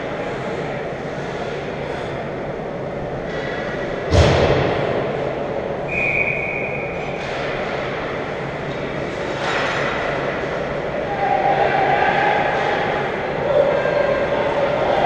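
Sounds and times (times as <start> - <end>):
referee whistle blast: 5.9 - 7.0.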